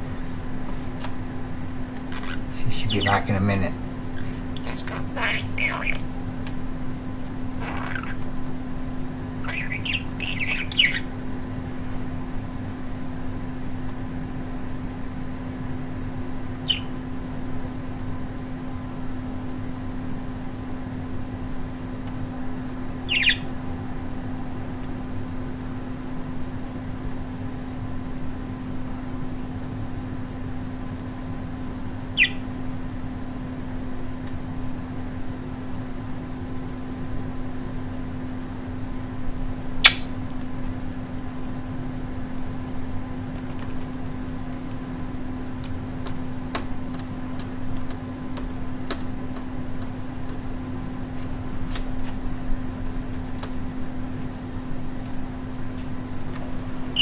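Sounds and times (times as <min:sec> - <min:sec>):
steady low hum: 0:00.0 - 0:57.0
budgerigar chirp: 0:02.1 - 0:03.3, 0:04.2 - 0:06.1, 0:07.6 - 0:08.2, 0:09.4 - 0:11.1, 0:16.6 - 0:17.0, 0:23.0 - 0:23.6, 0:32.1 - 0:32.5, 0:39.8 - 0:40.1.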